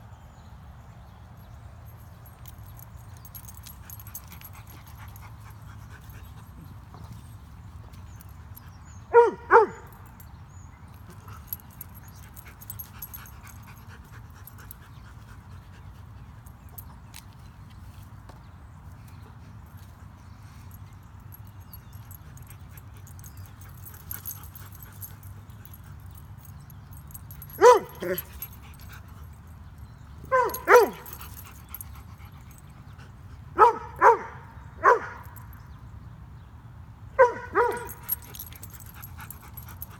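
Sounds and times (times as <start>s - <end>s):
dog play barks: 9.1s - 10.2s, 27.4s - 29.0s, 30.2s - 32.0s, 33.6s - 35.5s, 37.2s - 39.9s.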